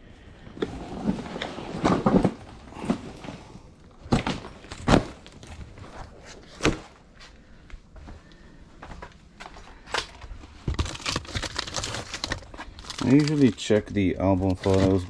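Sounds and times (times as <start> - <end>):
objects knocking and thudding: 0.6 - 7.0.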